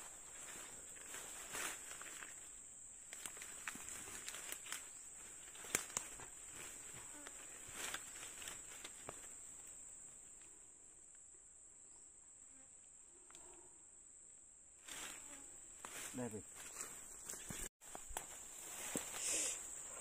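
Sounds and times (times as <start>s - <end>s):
high-pitched insect drone: 19.0s - 20.0s.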